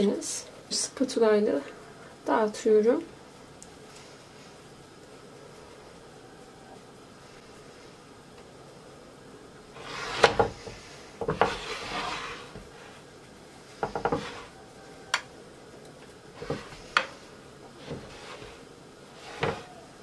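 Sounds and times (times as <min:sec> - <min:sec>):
spatula scraping glass dish: 0:11.3 - 0:12.6.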